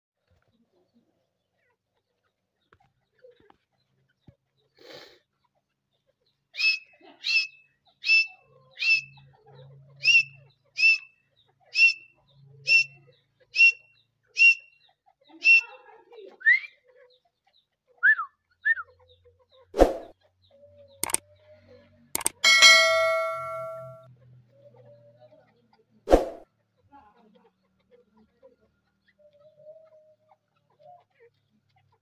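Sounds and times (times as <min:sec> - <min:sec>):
bird whistled calls: 0:06.6 - 0:09.1, 0:10.0 - 0:11.1, 0:11.8 - 0:12.0, 0:12.7 - 0:12.9, 0:13.6 - 0:13.8, 0:14.4 - 0:14.7
sharp clicks: 0:22.2 - 0:23.9.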